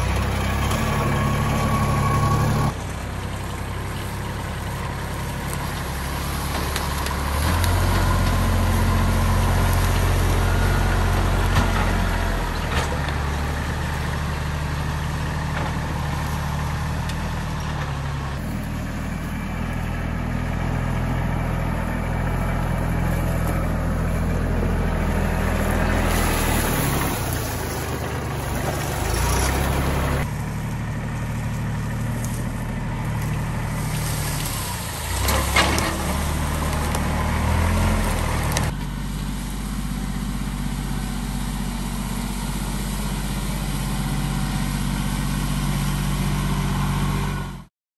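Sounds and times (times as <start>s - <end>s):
tractor diesel engine running: 0.0s - 47.7s
box blade dragging through leaves: 3.8s - 14.3s, 22.3s - 39.9s.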